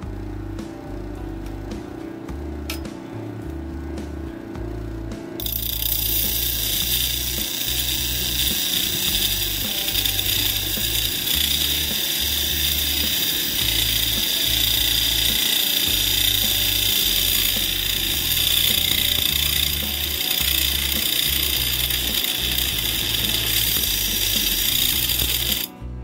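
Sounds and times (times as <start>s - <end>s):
knife grinding hiss: 5.4s - 25.8s.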